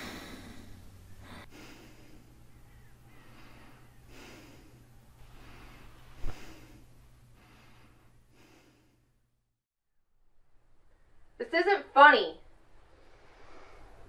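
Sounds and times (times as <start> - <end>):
man breathing heavily: 0.0 - 9.2.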